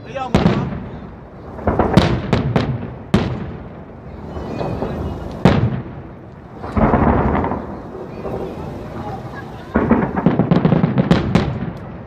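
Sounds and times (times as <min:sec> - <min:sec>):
rumbling echo: 0:00.1 - 0:12.0
firework shells bursting: 0:01.5 - 0:12.0.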